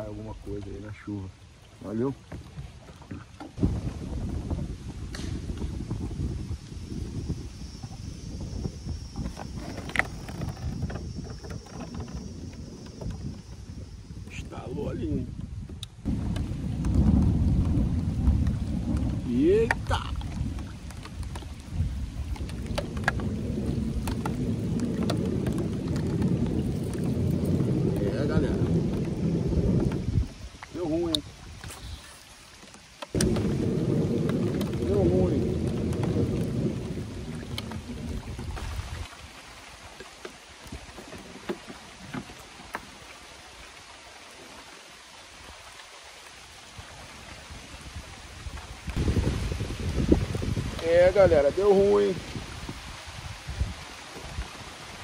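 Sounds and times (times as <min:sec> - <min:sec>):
rain falling: 0:16.0 - 0:55.0.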